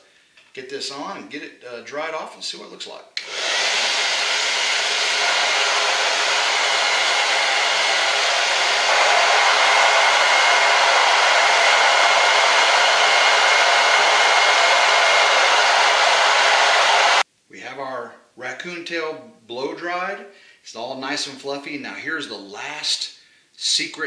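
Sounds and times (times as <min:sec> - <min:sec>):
hair dryer running: 0:03.2 - 0:17.2.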